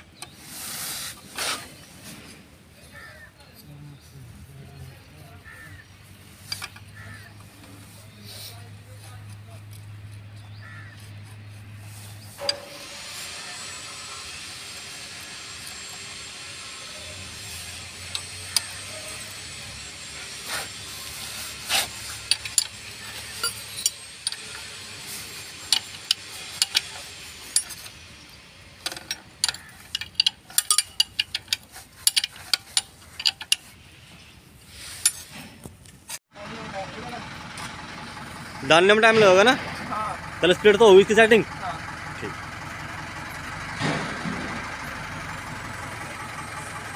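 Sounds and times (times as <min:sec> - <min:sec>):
spanner clicking on metal: 0:12.4 - 0:28.0, 0:28.8 - 0:33.7.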